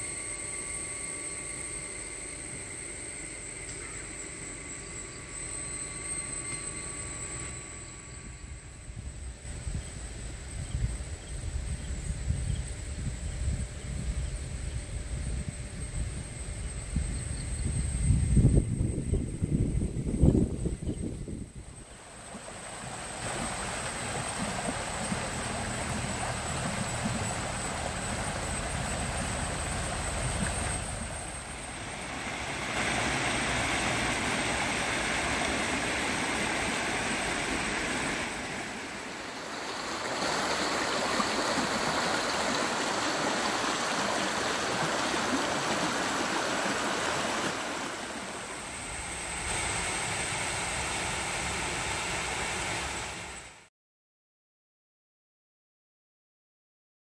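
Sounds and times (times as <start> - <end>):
stream splashing over rocks: 31.8 - 48.6.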